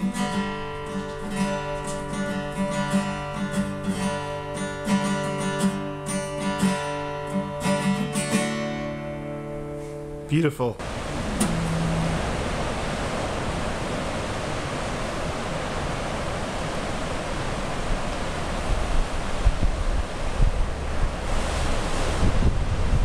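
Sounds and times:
ocean surf washing: 0.0 - 23.0
wind buffeting microphone: 10.8 - 23.0.

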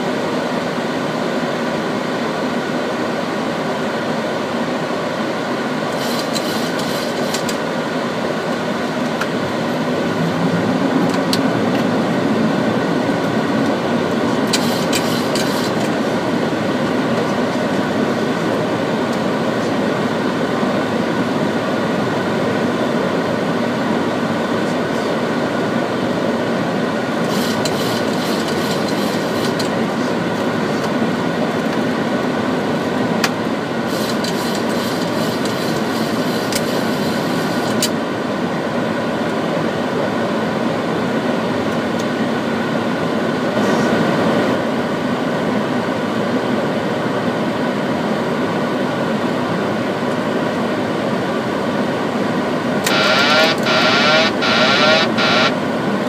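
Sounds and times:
aircraft airflow and engine rush: 0.0 - 56.0
steady hum tones: 52.8 - 55.7
high crackle: 52.9 - 55.5.

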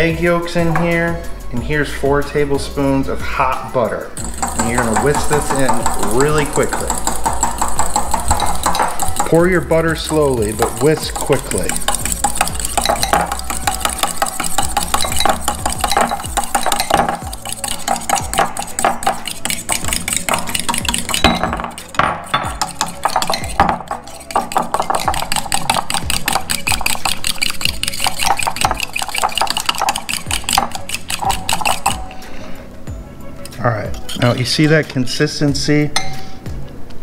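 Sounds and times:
whisk clicking against glass bowl: 4.2 - 32.2.

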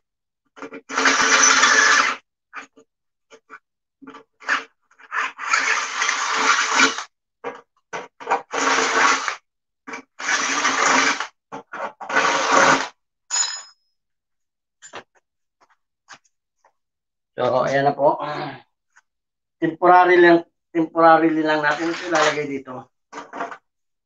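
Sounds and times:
drill boring through metal: 0.8 - 2.2, 5.1 - 7.1, 8.4 - 11.3, 12.0 - 12.9.

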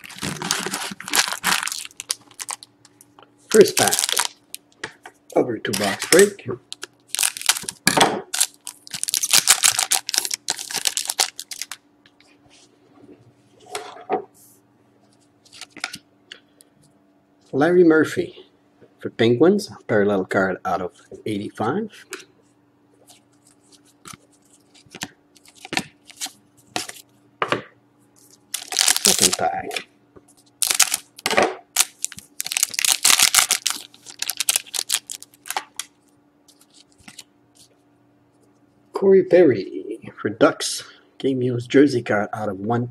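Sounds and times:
foil wrapper crinkling: 0.0 - 4.8, 5.7 - 11.8, 23.1 - 27.0, 28.2 - 37.7.

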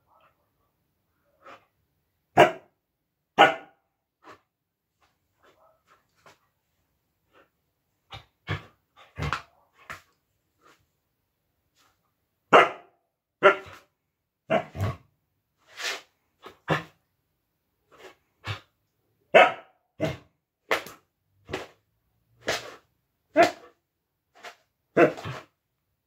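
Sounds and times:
dog play barks: 2.3 - 4.4, 12.5 - 15.1, 19.3 - 21.8, 22.4 - 23.8, 24.4 - 25.5.

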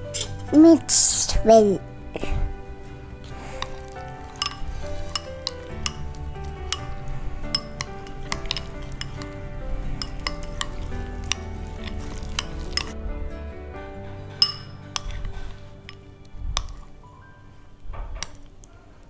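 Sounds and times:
background music: 0.0 - 19.0
spoon clinking and scraping glass bowl: 3.2 - 13.0, 14.3 - 16.9.

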